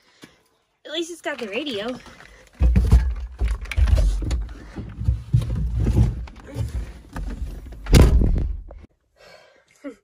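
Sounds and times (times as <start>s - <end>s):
microphone handling rumbles: 2.7s - 8.8s.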